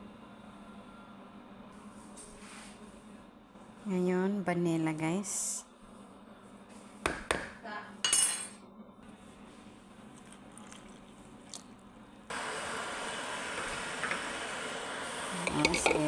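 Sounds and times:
glass clinking: 15.4s - 16.0s.

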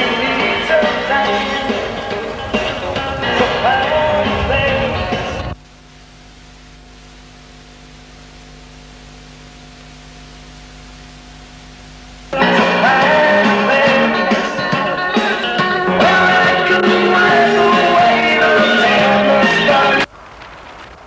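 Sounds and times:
rock music with singing: 0.0s - 5.6s, 12.3s - 20.1s
low electrical hum: 0.0s - 13.0s.

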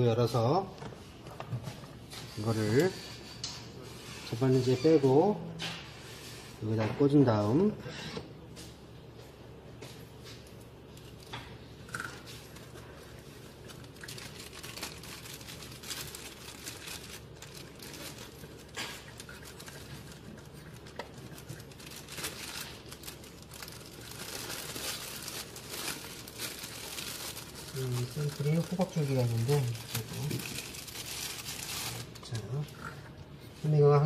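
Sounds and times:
plastic wrap crinkling: 10.3s - 32.8s.

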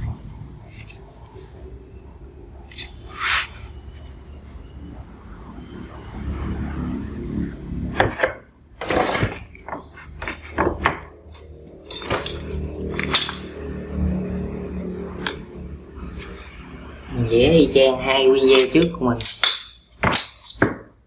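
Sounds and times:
marker drawn along ruler: 2.7s - 3.6s
metal clicks and clinks: 11.8s - 13.6s.

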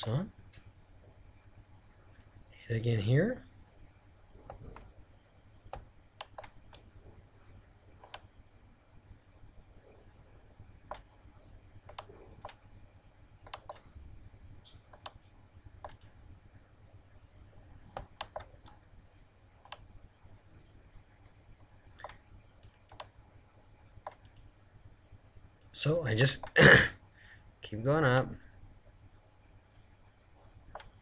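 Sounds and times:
low background hum: 0.0s - 31.0s
mouse and keyboard clicks: 5.7s - 6.9s, 8.0s - 8.3s, 10.9s - 11.1s, 11.8s - 12.6s, 13.4s - 13.9s, 14.6s - 16.1s, 17.9s - 18.8s, 19.6s - 19.9s, 22.0s - 23.2s, 24.0s - 24.5s, 30.7s - 31.0s.

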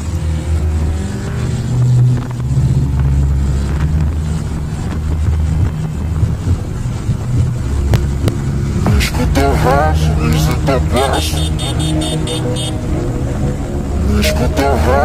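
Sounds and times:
wind noise on microphone: 0.0s - 10.9s
motorcycle engine rumbling: 0.0s - 15.0s.

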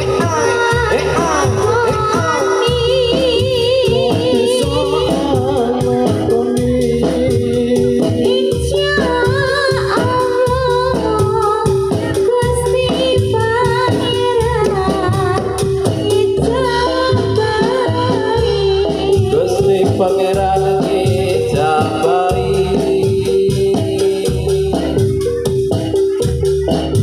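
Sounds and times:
woman singing with vibrato: 0.0s - 25.4s
percussion beat: 0.0s - 27.0s.

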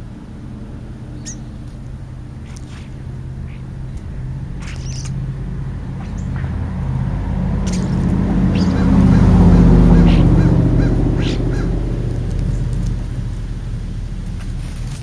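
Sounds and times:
vehicle passing: 0.0s - 15.0s
short bird calls: 4.6s - 5.2s, 7.6s - 11.7s.

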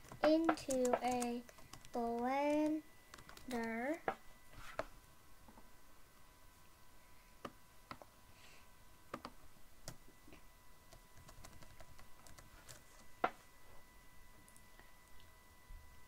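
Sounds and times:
keyboard keys clicking: 0.0s - 3.9s, 11.2s - 12.8s.

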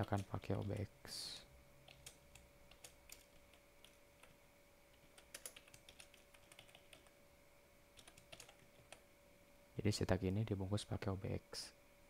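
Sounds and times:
computer keyboard typing: 0.0s - 0.9s, 1.8s - 7.1s, 8.0s - 9.0s
faint steady hum: 0.0s - 12.0s.

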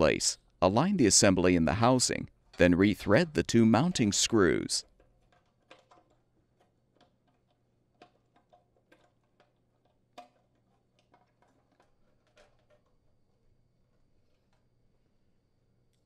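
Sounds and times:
small clicks and taps of metal parts: 4.8s - 13.0s.

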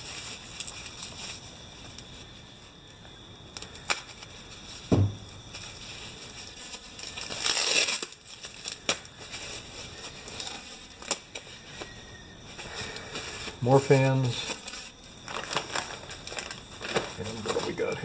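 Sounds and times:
foam and plastic bag crinkling: 0.0s - 2.8s, 3.6s - 18.0s
dull thump: 4.9s - 5.4s.

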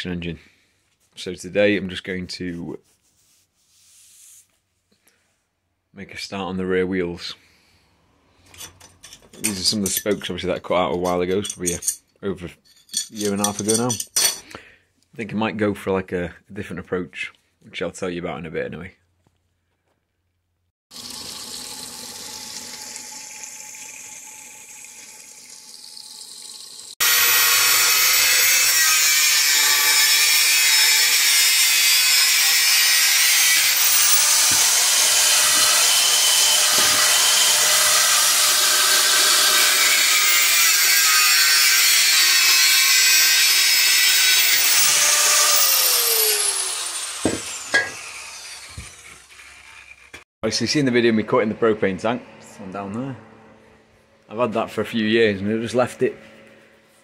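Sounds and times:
angle grinder cutting steel: 20.9s - 53.1s.

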